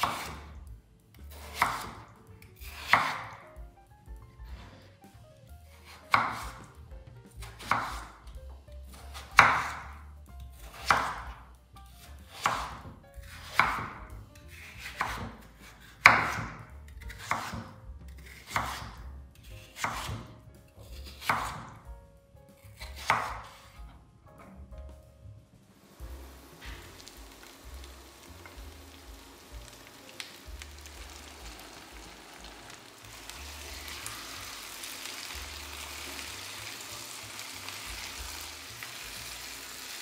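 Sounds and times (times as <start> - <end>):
knife chopping on cutting board: 0.0 - 0.6, 1.3 - 3.5, 5.8 - 6.8, 7.4 - 8.3, 8.9 - 10.0, 10.6 - 21.8, 22.6 - 23.9.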